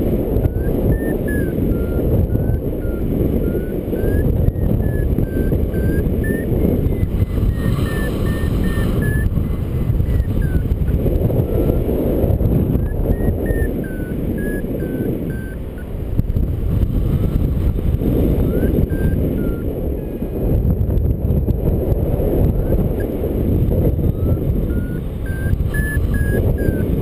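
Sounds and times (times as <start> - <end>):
variometer beeping: 0.0 - 20.3, 22.4 - 27.0
wind rushing over microphone: 0.0 - 27.0.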